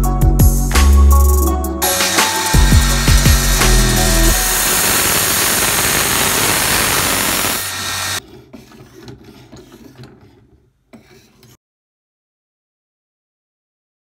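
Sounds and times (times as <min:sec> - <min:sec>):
belt grinder grinding: 0:01.8 - 0:11.5
sharpening stone strokes on knife: 0:08.2 - 0:11.6.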